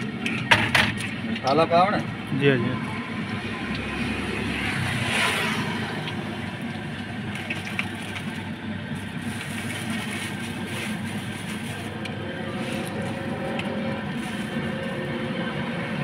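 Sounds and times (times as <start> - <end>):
low mechanical rumble: 0.0 - 16.0
rustling plastic bag: 7.3 - 15.4.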